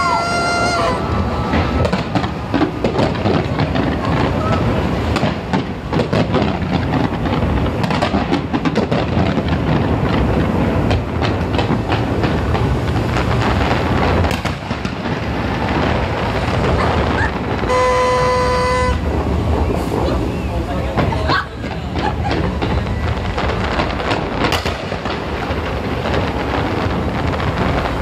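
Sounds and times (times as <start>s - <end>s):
fireworks bangs and crackling: 0.0s - 28.0s
heavy rumble: 0.0s - 28.0s
horn steady note: 17.7s - 19.1s.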